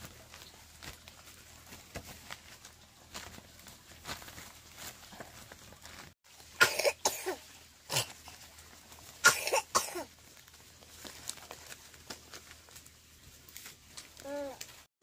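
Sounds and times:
person coughing: 0:06.6 - 0:08.2, 0:09.2 - 0:10.1.

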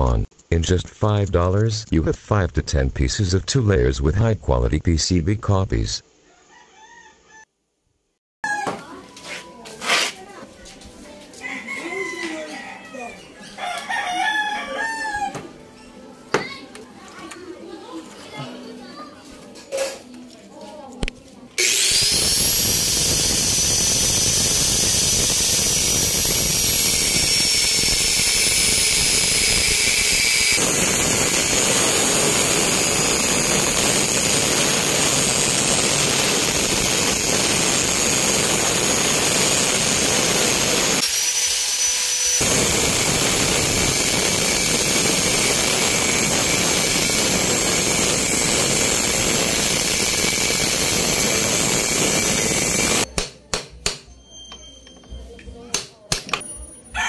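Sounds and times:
angle grinder cutting steel: 0:21.6 - 0:53.1.

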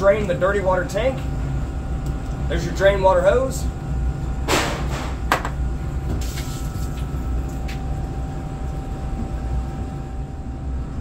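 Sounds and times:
steady low hum: 0:00.0 - 0:11.0
water rushing through drain hose: 0:06.2 - 0:07.9.

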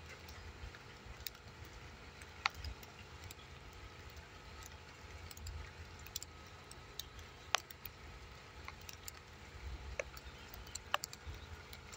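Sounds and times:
soft clicks: 0:01.2 - 0:08.0, 0:08.6 - 0:09.3, 0:09.9 - 0:11.9.

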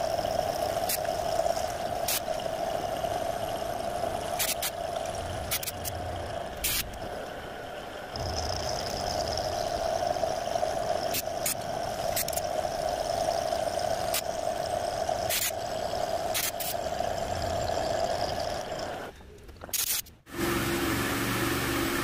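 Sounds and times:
sharp ticks: 0:08.2 - 0:10.1, 0:10.9 - 0:12.8.

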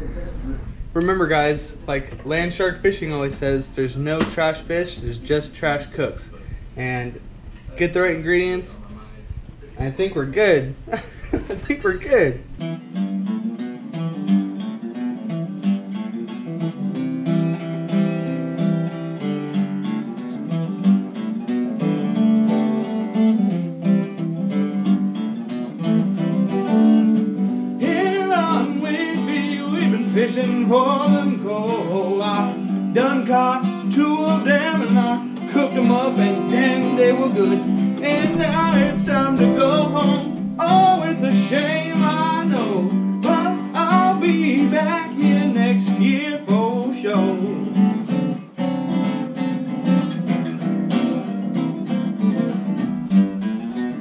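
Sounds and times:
acoustic guitar: 0:00.0 - 0:54.0
man singing: 0:27.8 - 0:47.8.

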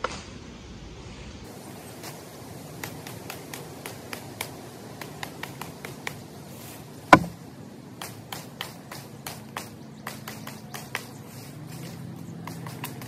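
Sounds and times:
hatchet chopping green branch: 0:07.1 - 0:07.4, 0:08.0 - 0:11.1.

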